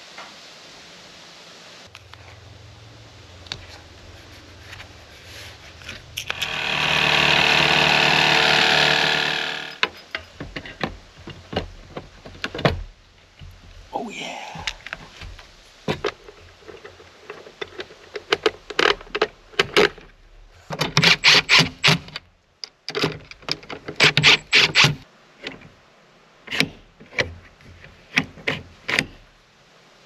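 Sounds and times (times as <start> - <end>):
cordless drill running: 6.3 - 9.8
metal clicks and clanks: 8.8 - 12.8.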